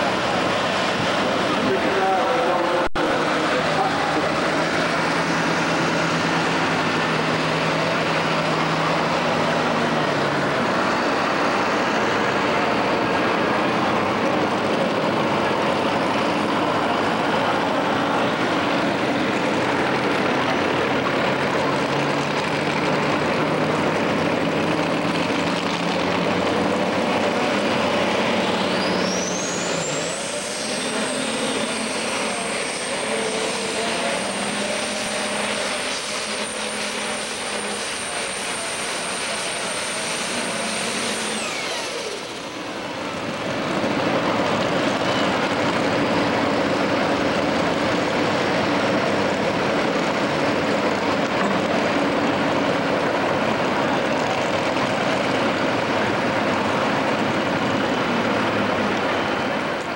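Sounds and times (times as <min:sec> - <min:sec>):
diesel engine running hard: 0:00.0 - 0:59.9
turbo whine whistle: 0:28.6 - 0:42.4.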